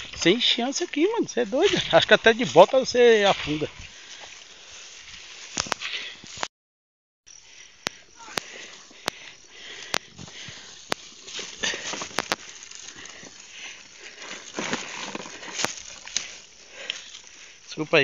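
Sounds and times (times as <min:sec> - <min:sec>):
bare feet on grass and stones: 0:00.0 - 0:06.5, 0:07.3 - 0:18.0
handling noise rustling: 0:10.1 - 0:17.3.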